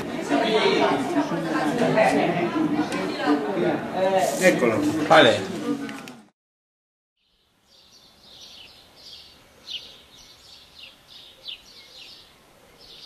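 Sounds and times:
small birds chirping: 0:07.2 - 0:13.0.

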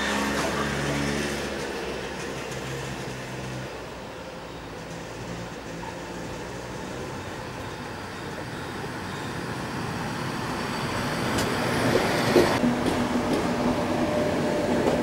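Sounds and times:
sharp train clacks: 0:00.0 - 0:03.9, 0:11.2 - 0:15.0
train rumbling past: 0:00.0 - 0:15.0.

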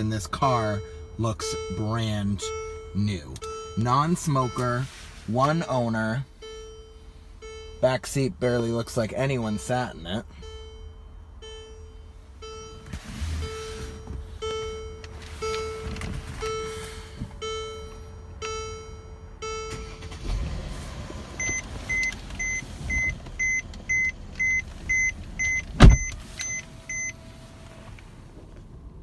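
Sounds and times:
low dashboard chime: 0:00.0 - 0:27.9
sharp thump: 0:25.8 - 0:26.1.

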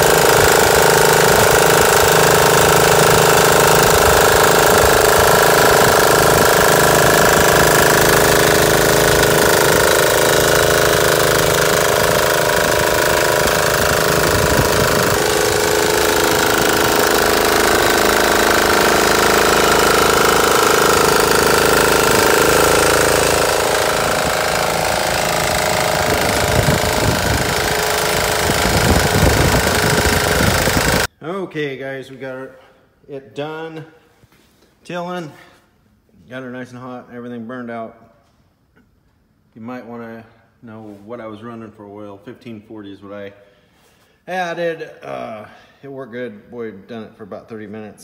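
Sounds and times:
diesel engine clattering: 0:00.0 - 0:31.1
tiller tines in soil: 0:00.0 - 0:31.1.

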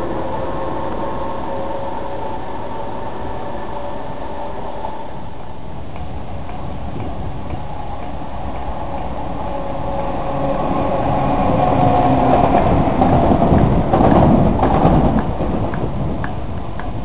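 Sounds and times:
diesel locomotive passing: 0:00.0 - 0:17.0.

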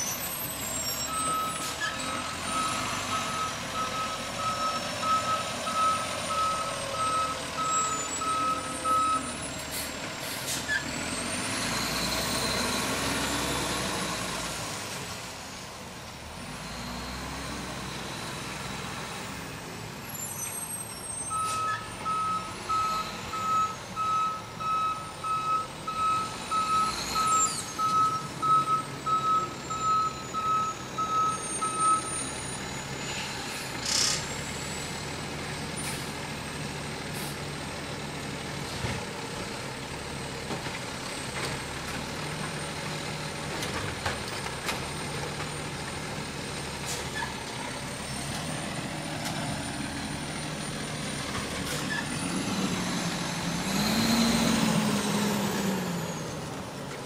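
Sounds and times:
diesel engine: 0:00.0 - 0:57.0
reversing alarm beeping: 0:00.9 - 0:09.4, 0:21.2 - 0:32.6
air brake hiss: 0:09.6 - 0:10.7.

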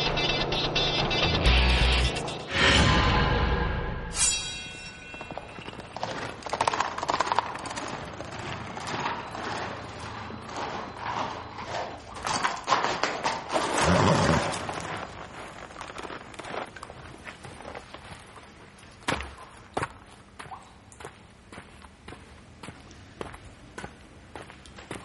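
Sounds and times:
horse hooves clip-clopping: 0:05.1 - 0:25.0.

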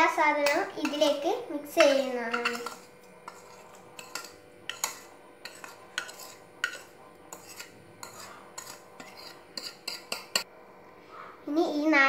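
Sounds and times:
spoon clinking against bowl: 0:01.8 - 0:10.4.

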